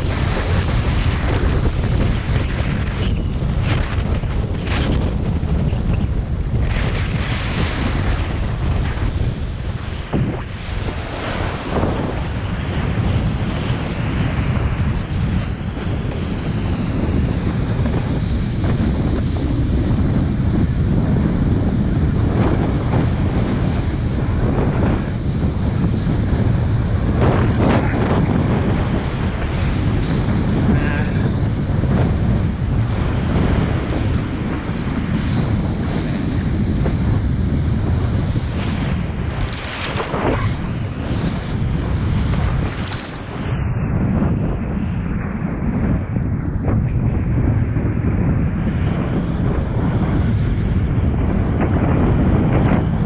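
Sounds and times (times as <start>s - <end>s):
rushing water and spray: 0.0s - 44.0s
wind noise on microphone: 0.0s - 53.0s
water splashes: 38.6s - 41.7s.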